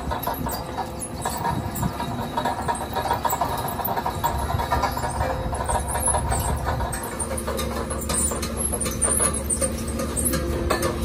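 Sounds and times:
engine running steadily: 0.0s - 11.0s
light rattling and clicking: 0.0s - 11.0s.

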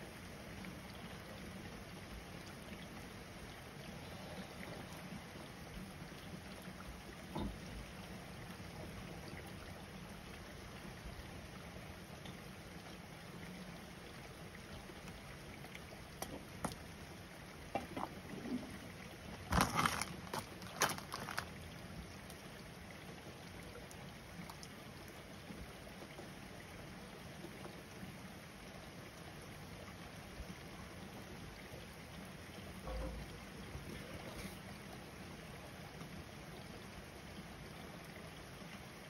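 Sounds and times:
steady rain falling: 17.8s - 22.5s.

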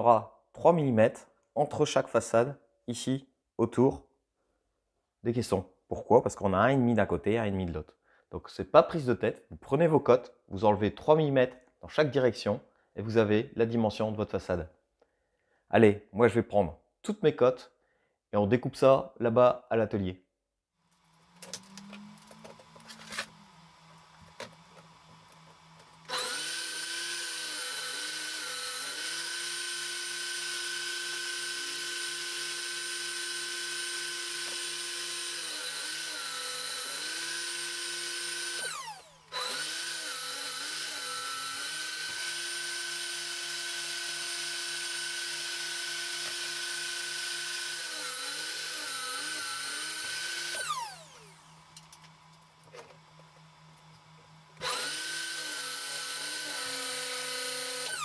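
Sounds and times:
table saw whine: 21.0s - 58.0s.

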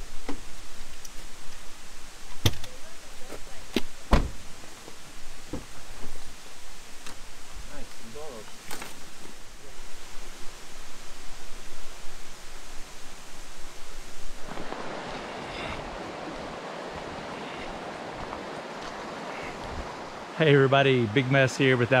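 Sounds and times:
stream water flowing: 0.0s - 22.0s
wind buffeting the microphone: 9.0s - 20.3s.

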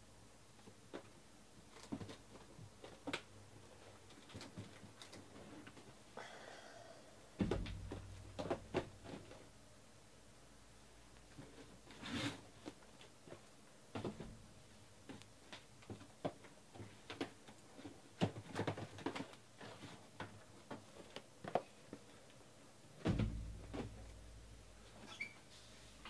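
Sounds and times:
loud bump: 7.4s - 9.0s.

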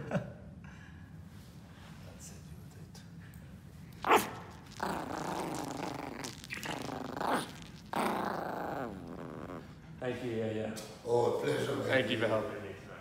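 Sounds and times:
puppy growling: 4.0s - 9.9s.

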